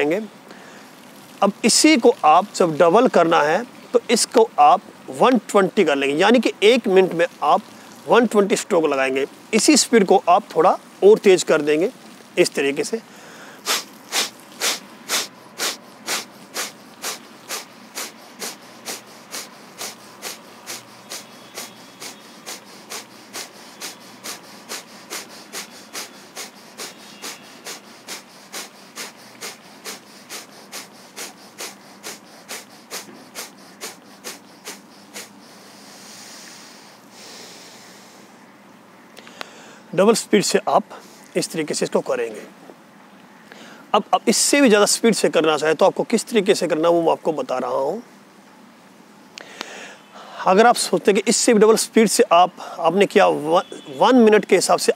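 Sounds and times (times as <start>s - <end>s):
long slow breath: 0.5s - 1.0s, 13.1s - 38.4s, 39.2s - 39.9s, 49.4s - 50.4s
man forcefully exhaling through nose: 13.1s - 38.3s.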